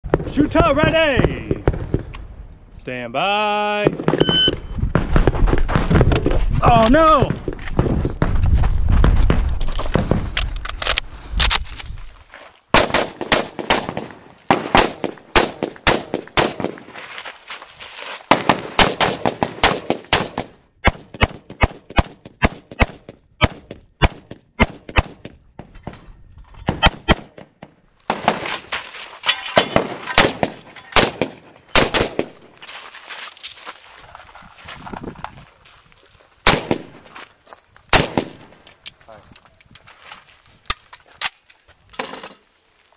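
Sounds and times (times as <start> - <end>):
semi-automatic rifle fire: 12.8 - 16.8, 18.3 - 20.5, 29.6 - 32.4, 36.5 - 37.0, 37.9 - 38.5.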